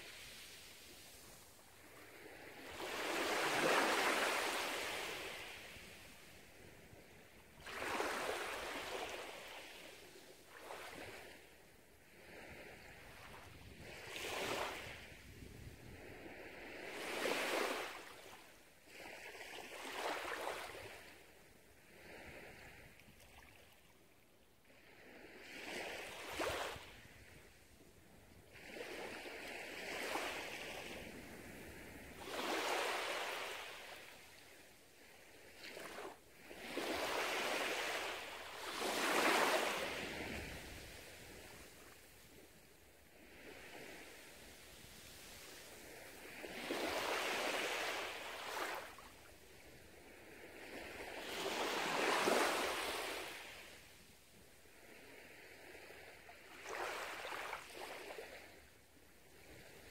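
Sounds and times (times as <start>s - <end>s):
waves washing onto sand: 0.0s - 11.4s, 28.5s - 34.5s, 35.5s - 59.9s.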